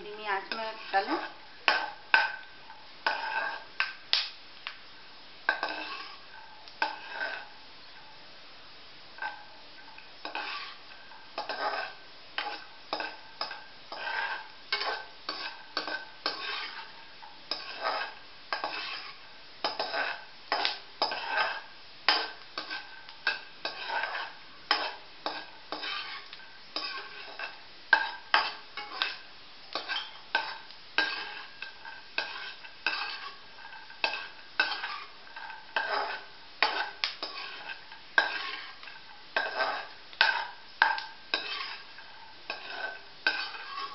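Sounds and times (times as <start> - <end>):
light oil sizzle: 0.0 - 43.9
ladle scraping metal pan: 0.1 - 3.8, 5.5 - 7.6, 9.2 - 43.9.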